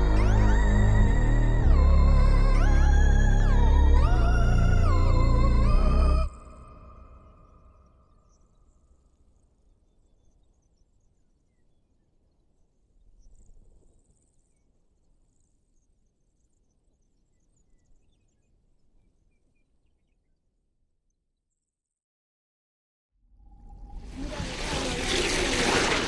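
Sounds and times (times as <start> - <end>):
faint high-pitched chirps: 0.0 - 22.0
low rumble: 23.4 - 26.0.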